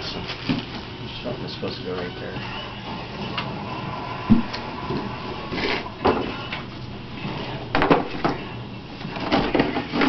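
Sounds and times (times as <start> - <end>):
cardboard and plastic rustling: 0.0 - 0.9, 4.4 - 10.0.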